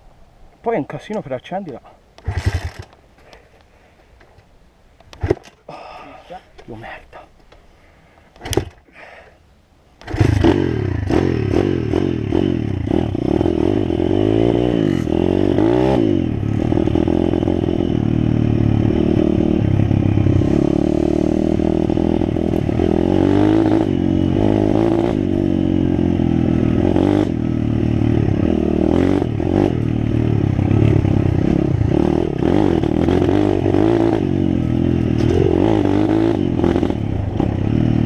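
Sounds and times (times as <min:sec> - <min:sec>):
dirt bike engine revving: 0:02.2 - 0:02.9, 0:10.0 - 0:38.0.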